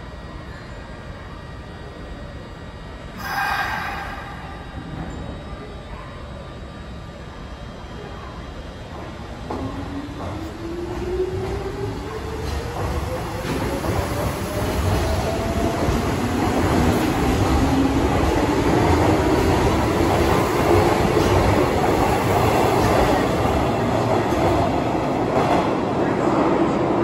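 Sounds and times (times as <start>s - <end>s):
train wheels rumbling on rails: 8.8s - 27.0s.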